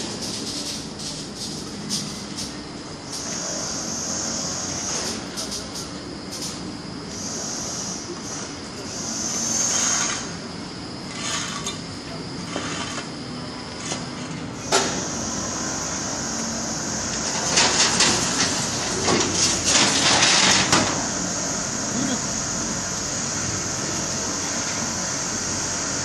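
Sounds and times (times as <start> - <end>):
hoist car mechanical hum: 0.0 - 26.0.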